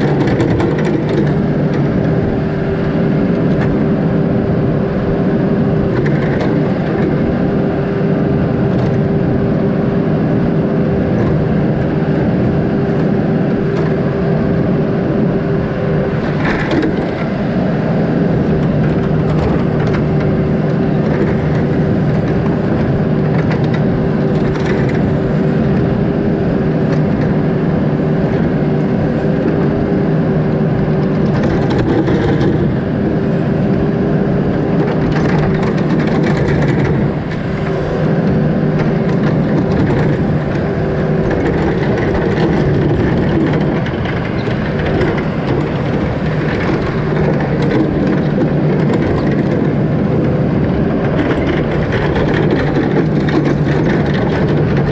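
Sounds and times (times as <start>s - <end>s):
backhoe diesel engine running: 0.0s - 54.9s.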